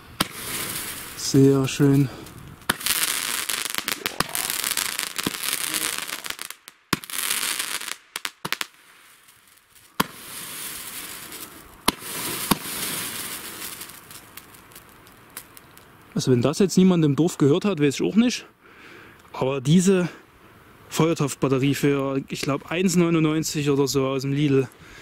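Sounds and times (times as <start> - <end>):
firework fountains hissing: 0.0 - 15.8
firework cracks and bangs: 0.0 - 15.9.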